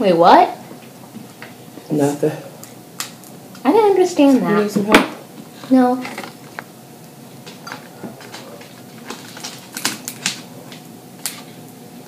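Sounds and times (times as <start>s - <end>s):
crab shell cracking: 8.3s - 11.5s.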